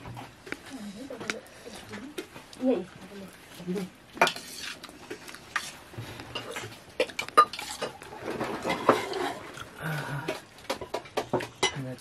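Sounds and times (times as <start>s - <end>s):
metal utensils clinking on dishes: 5.6s - 9.6s, 10.2s - 12.0s.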